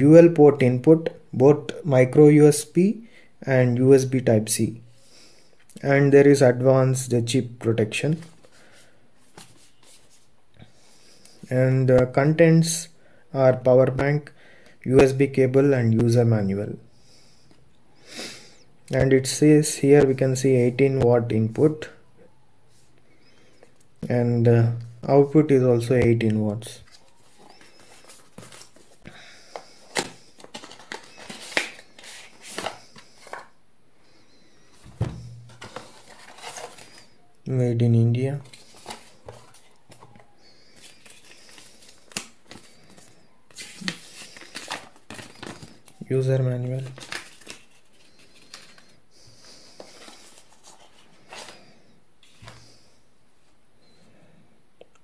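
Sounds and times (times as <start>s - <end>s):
cardboard packaging rustling: 26.8s - 33.5s, 34.7s - 37.2s, 38.4s - 46.0s, 46.8s - 48.9s.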